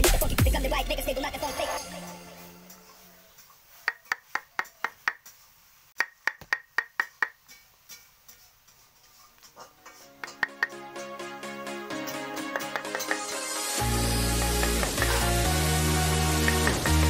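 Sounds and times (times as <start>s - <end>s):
mallet tapping chisel into wood: 6.0s - 7.4s, 10.2s - 10.8s.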